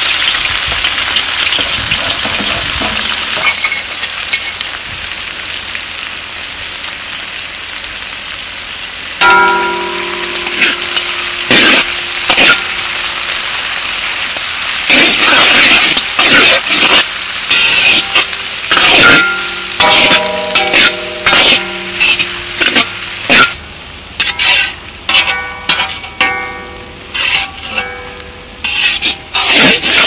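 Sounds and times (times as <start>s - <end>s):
food sizzling in pan: 0.0s - 30.0s
steady pitched tones: 9.2s - 15.4s, 16.8s - 24.0s, 25.3s - 28.9s
utensil scraping pan: 9.2s - 23.6s, 24.2s - 30.0s.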